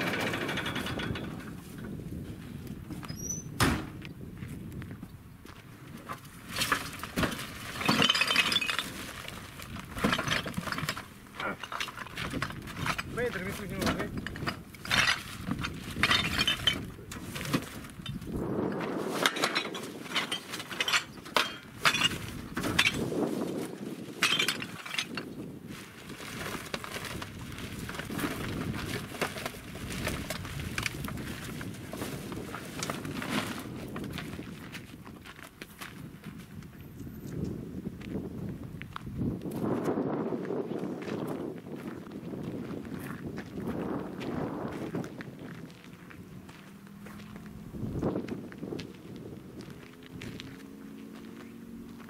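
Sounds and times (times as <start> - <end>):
junk clinking and knocking: 0.0 - 2.0, 6.5 - 18.4, 19.2 - 23.1, 24.1 - 25.4.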